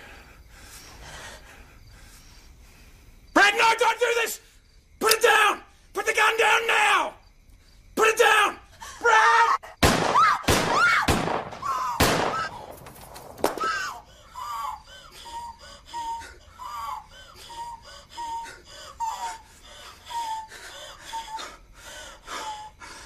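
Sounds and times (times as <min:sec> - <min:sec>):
loud outburst: 0:05.0 - 0:07.2, 0:08.0 - 0:12.8, 0:13.4 - 0:14.0.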